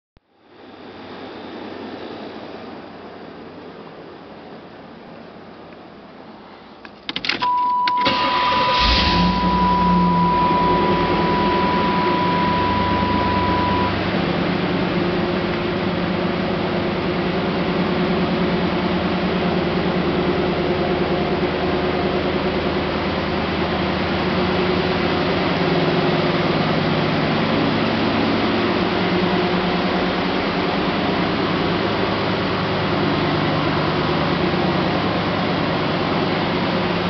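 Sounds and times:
ignition clicks: 0:06.8 - 0:13.0
car engine starting and idling: 0:06.9 - 0:37.0
electronic warning tone: 0:07.4 - 0:14.1.

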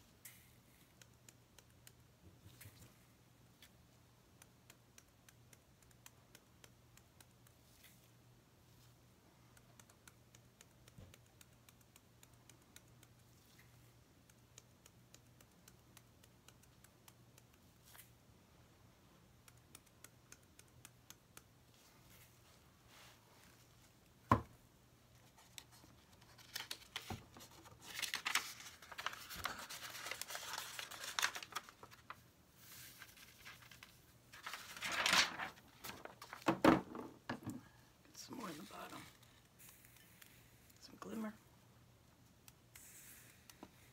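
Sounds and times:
paper rustling and crinkling: 0:25.3 - 0:36.6.

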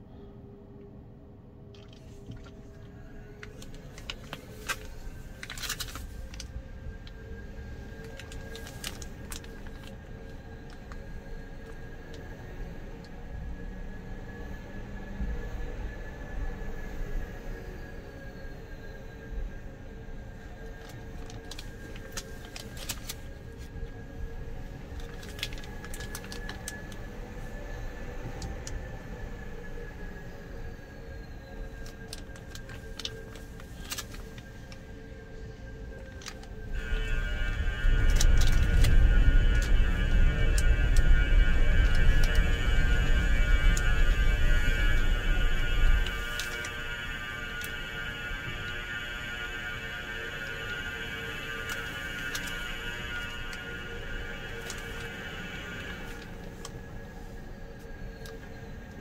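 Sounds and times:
electric truck drive hum: 0:00.9 - 0:59.0
sharp clicks and rattles: 0:24.9 - 0:27.1, 0:31.7 - 0:34.8
low rumble: 0:30.4 - 0:59.0.

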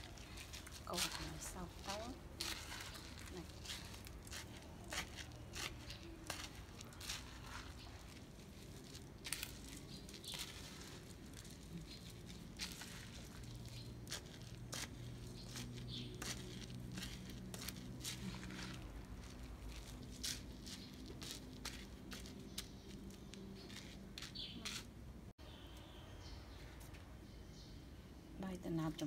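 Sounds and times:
rice stirred in metal colander: 0:00.0 - 0:21.3.

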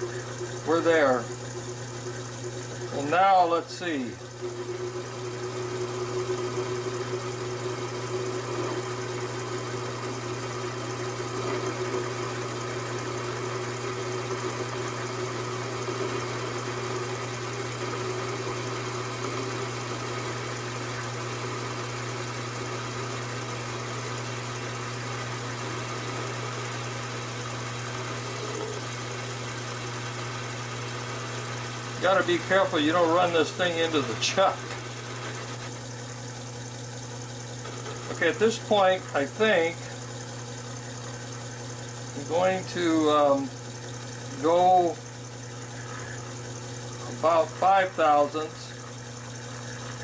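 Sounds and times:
lathe motor humming: 0:00.0 - 0:50.0.

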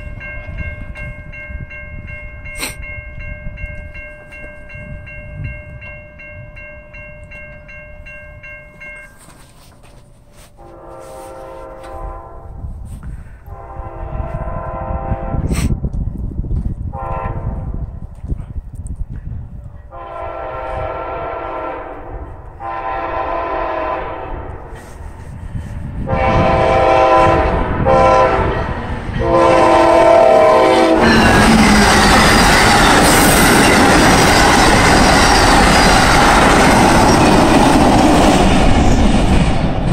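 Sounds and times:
train horn blasts: 0:10.4 - 0:12.9, 0:13.5 - 0:15.7, 0:16.9 - 0:17.8, 0:19.9 - 0:24.8, 0:26.0 - 0:34.5
train wheels on rails: 0:14.2 - 0:39.9.

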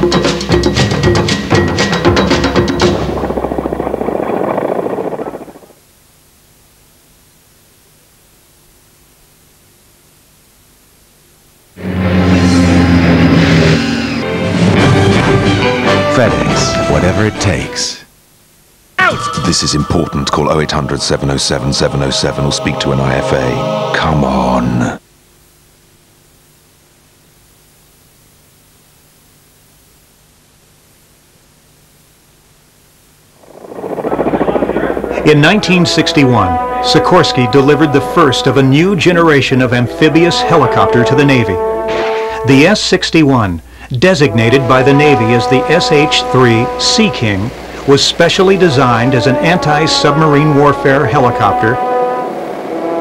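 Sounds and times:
faint low hum: 0:00.0 - 0:52.3
tape hiss: 0:00.0 - 0:53.0
loud fast-pulsing sound: 0:11.8 - 0:15.4, 0:33.4 - 0:38.4.

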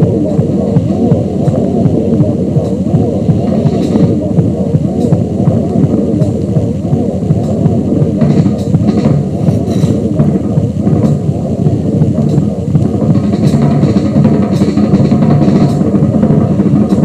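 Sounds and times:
low-pitched electronic layer: 0:00.0 - 0:17.0
scattered drum hits: 0:08.2 - 0:11.2, 0:12.1 - 0:17.0.

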